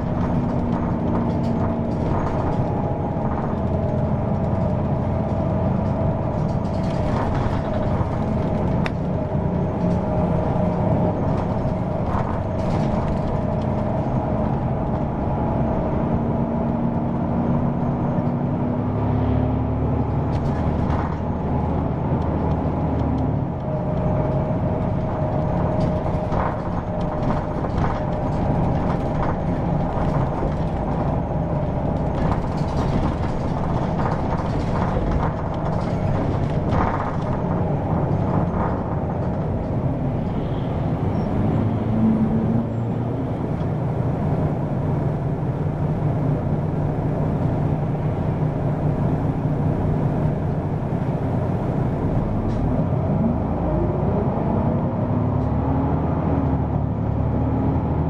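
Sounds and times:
drivetrain whine: 0.0s - 54.2s
bus diesel engine running: 0.0s - 58.0s
cabin rattles and clicks: 24.2s - 39.9s.

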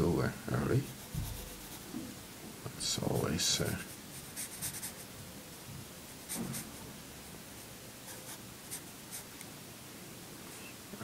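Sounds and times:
pencil sketching on paper: 0.8s - 1.8s, 3.1s - 5.1s, 6.1s - 6.8s.

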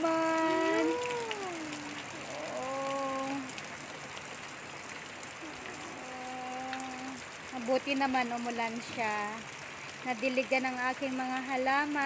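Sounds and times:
person humming: 0.0s - 3.6s, 5.4s - 7.2s
rain falling on plants: 0.0s - 12.0s.

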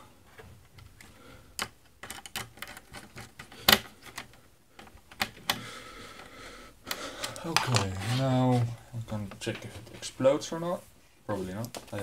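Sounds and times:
sharp clicks and light knocks: 0.6s - 6.3s.

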